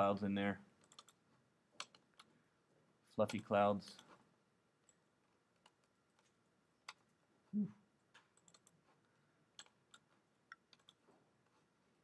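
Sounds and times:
mouse and keyboard clicks: 0.8 - 1.2, 1.8 - 2.3, 8.1 - 8.8, 9.6 - 11.1
person humming: 7.5 - 7.8.

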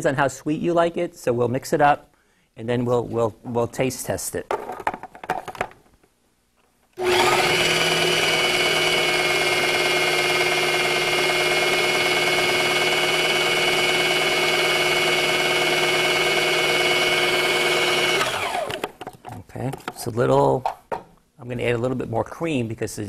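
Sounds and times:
food processor motor whining: 7.0 - 19.0.

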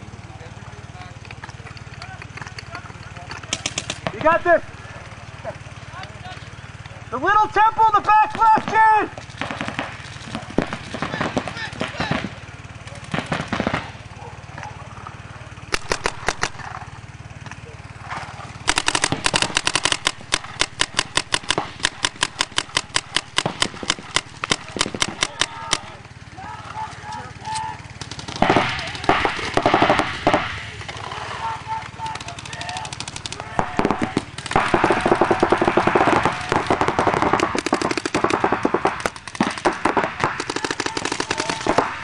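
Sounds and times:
paintball marker firing rapidly: 1.8 - 4.6, 8.2 - 12.4, 13.0 - 14.0, 15.7 - 17.6, 18.6 - 26.0, 28.0 - 42.0.

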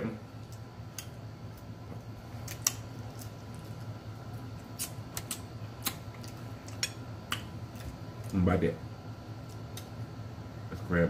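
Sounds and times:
low steady hum: 0.0 - 11.0
crab shells cracking: 2.4 - 7.6.

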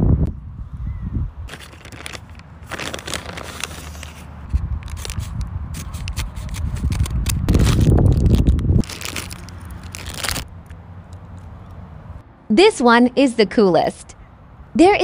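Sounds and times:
package crinkling: 1.5 - 10.8
package handling noise: 1.5 - 11.4.

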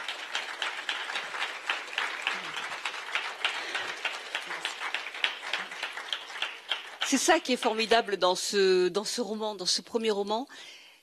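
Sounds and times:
audience applauding: 0.0 - 7.8.

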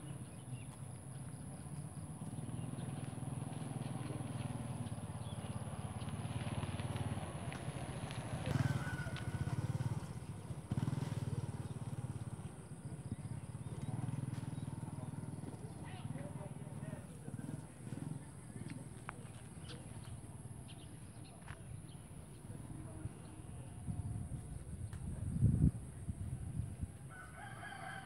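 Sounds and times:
low engine hum: 0.0 - 27.4.

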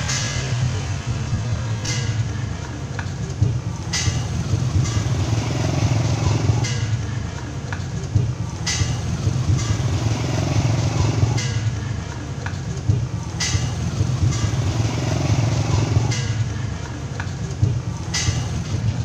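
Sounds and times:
motorcycle engines rumbling: 0.0 - 19.0.

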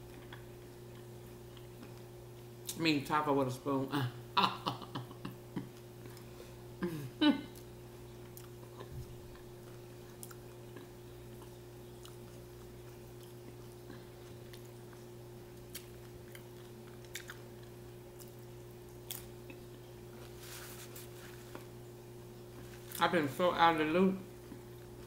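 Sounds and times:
chewing and mouth sounds: 0.0 - 2.8, 7.5 - 20.3.

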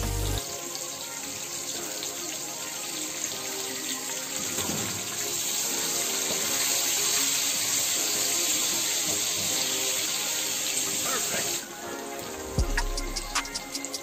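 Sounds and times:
onion sizzling in hot oil: 0.0 - 14.0
soft background music: 0.0 - 14.0.

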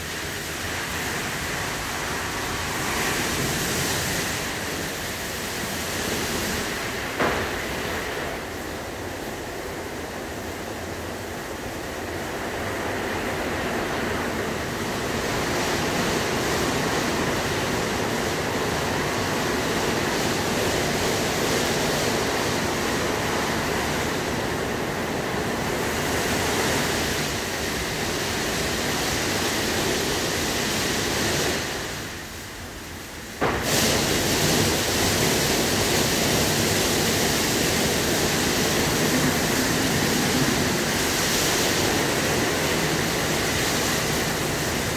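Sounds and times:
water spray rushing: 0.0 - 10.5, 33.3 - 44.9
car wash brushes and machinery: 0.0 - 44.9.

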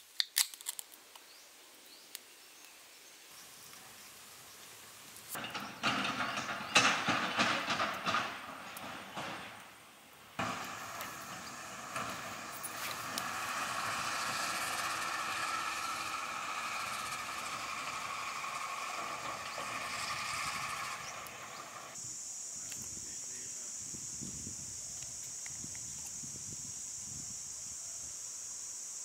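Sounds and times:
fire crackling: 3.4 - 22.0
high-pitched hiss: 9.4 - 29.0.

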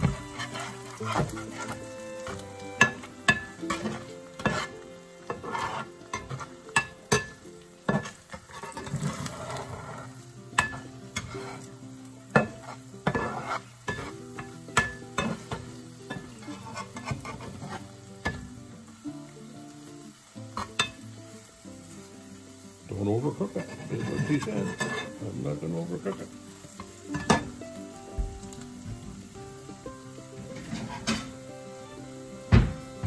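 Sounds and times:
metal spatula scraping and tapping pan: 0.0 - 18.6, 20.5 - 21.1, 23.4 - 25.3, 26.0 - 27.6, 30.4 - 31.4
eggs sizzling in a frying pan: 0.0 - 33.0.

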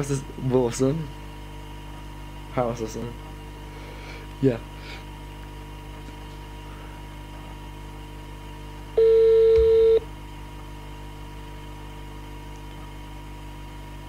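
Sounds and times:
telephone ringback beep: 9.0 - 10.0.

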